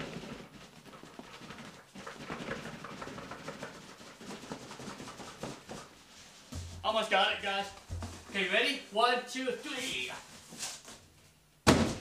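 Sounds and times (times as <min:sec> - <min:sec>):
cardboard boxes scraping: 0:09.8 - 0:11.0.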